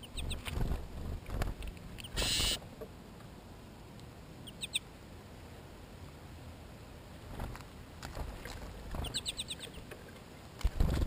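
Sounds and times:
high bird chirps: 2.0 - 2.6.

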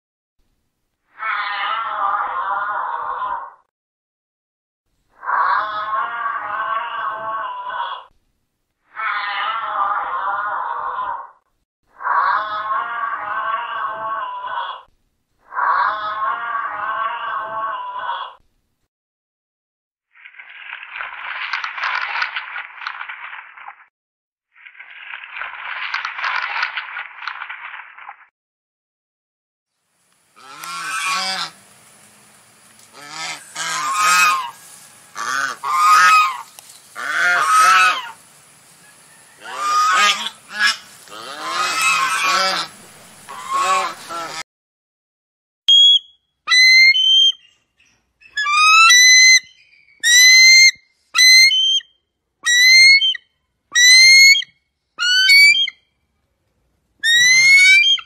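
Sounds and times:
swan honking: 30.4 - 31.6, 32.9 - 38.2, 39.1 - 44.4, 57.0 - 58.0
bird of prey whistled calls: 45.7 - 47.6, 48.2 - 53.2, 53.8 - 55.8, 57.0 - 58.0.

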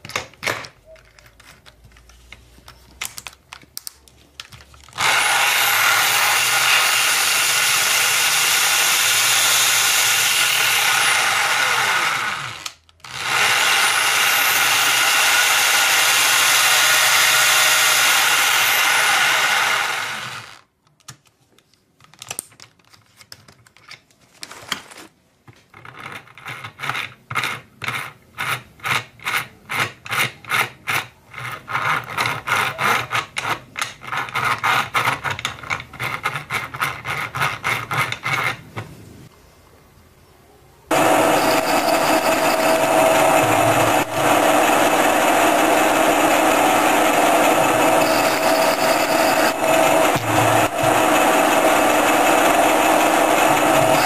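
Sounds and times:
power tool running loudly: 5.0 - 20.6, 40.9 - 54.0
regular mechanical pulsing: 40.9 - 54.0.

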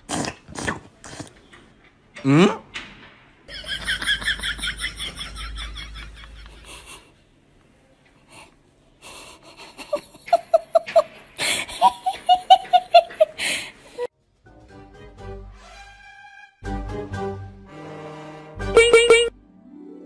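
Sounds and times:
people laughing ha-ha-ha: 3.5 - 7.1, 9.4 - 13.5.

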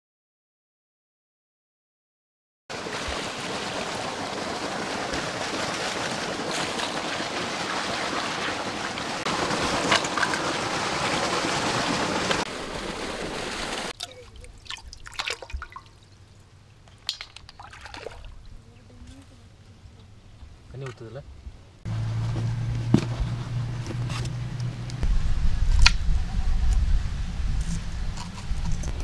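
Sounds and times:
water running and splashing: 2.7 - 18.6.

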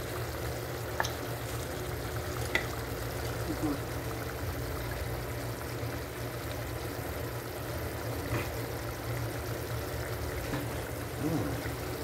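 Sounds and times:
sauce bubbling and sizzling: 0.0 - 12.0.

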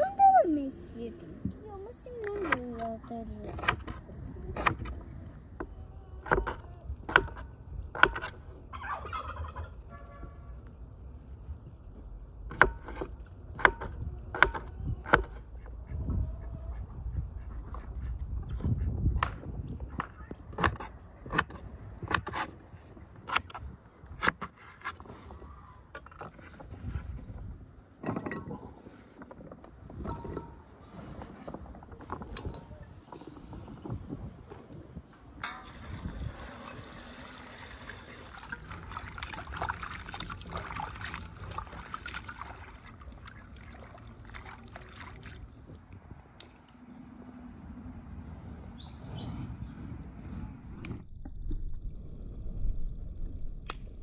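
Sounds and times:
turkey gobbling: 8.7 - 9.8.

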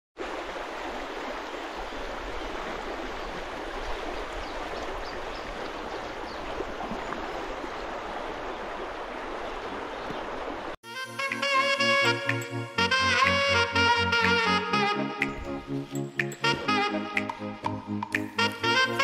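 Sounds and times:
river water rushing over stones: 0.2 - 10.8.

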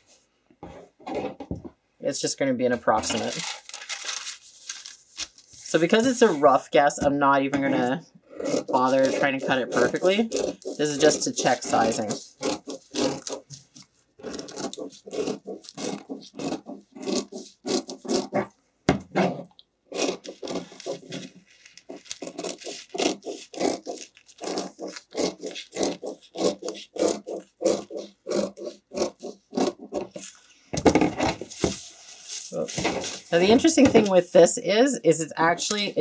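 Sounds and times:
scissors snipping fabric: 8.4 - 13.6, 14.2 - 18.4, 19.9 - 21.2, 22.0 - 30.2.

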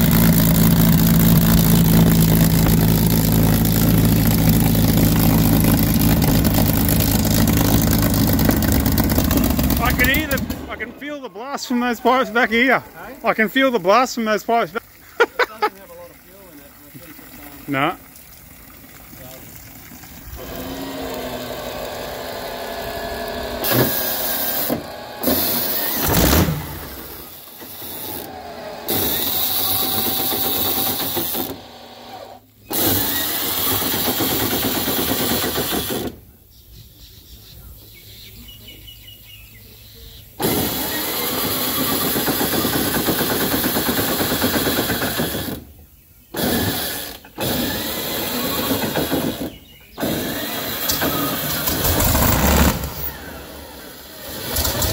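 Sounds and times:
aircraft engine running: 0.0 - 13.3.

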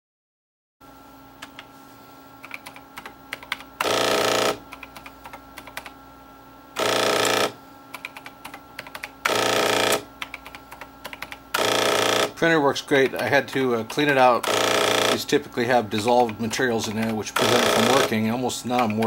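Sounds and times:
calculator keys clicking: 2.4 - 3.7, 4.7 - 5.9, 8.0 - 9.1, 10.2 - 11.4, 16.0 - 19.0
thermal strip printer printing: 3.8 - 4.7, 6.8 - 7.6, 9.0 - 19.0.

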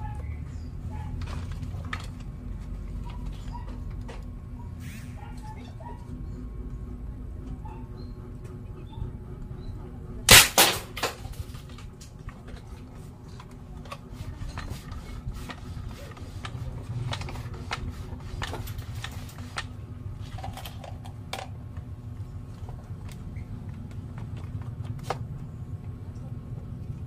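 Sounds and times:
toy gun bang: 10.3 - 11.4.

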